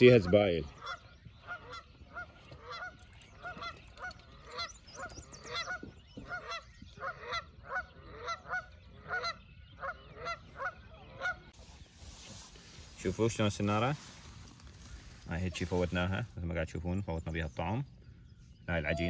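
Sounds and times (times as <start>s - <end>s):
geese honking: 0.0s - 11.7s.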